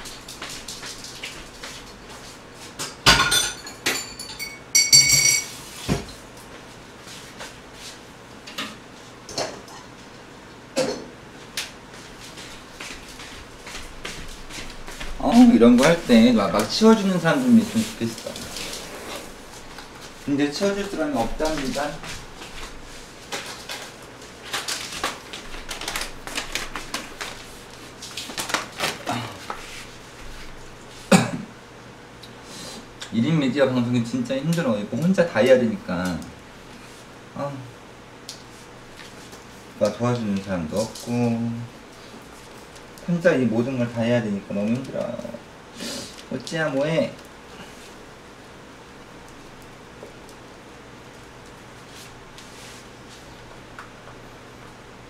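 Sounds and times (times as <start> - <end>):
dishes and cutlery clattering: 3.1 - 5.6.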